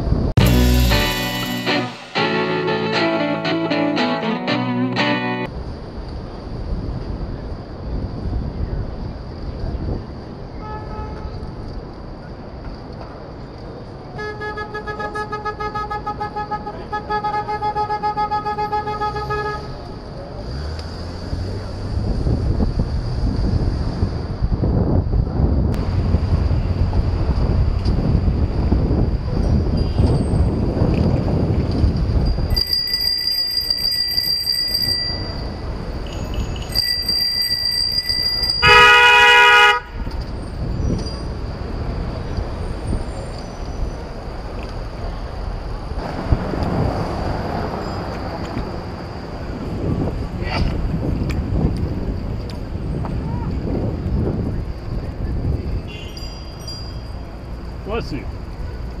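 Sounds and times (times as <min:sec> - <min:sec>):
wind noise: 0:00.0 - 0:00.4, 0:05.5 - 0:13.0, 0:21.2 - 0:56.9
traffic: 0:00.0 - 0:59.0
car horn blast: 0:14.2 - 0:19.8, 0:38.6 - 0:40.1.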